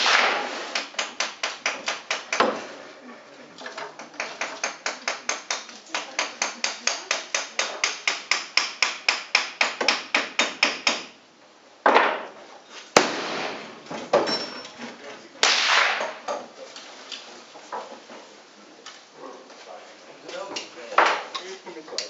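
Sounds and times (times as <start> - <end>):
gunshots echoing indoors: 13.0 - 13.8, 15.4 - 16.2.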